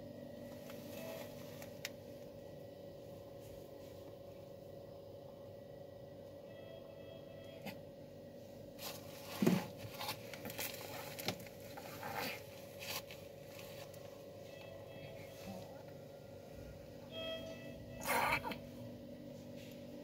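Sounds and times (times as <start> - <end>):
faint steady hum: 0.0 - 20.0
rustling and scraping handling noise: 0.4 - 2.0, 8.5 - 16.7, 19.3 - 20.0.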